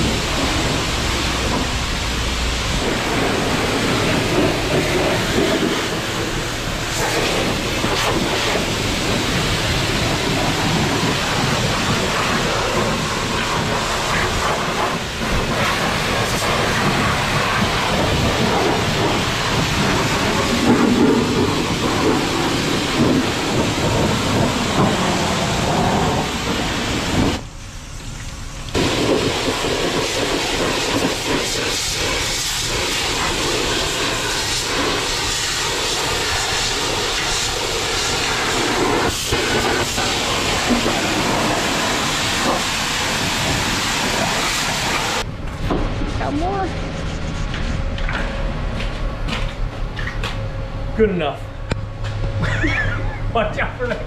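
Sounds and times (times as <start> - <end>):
pressure washer jet hissing: 0.0 - 45.3
water splashing on concrete: 28.7 - 45.3.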